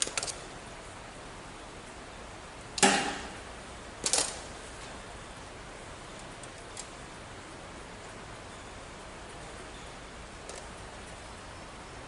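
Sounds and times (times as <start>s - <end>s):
metallic clicks of wire handling: 0.0s - 0.4s, 4.0s - 4.5s.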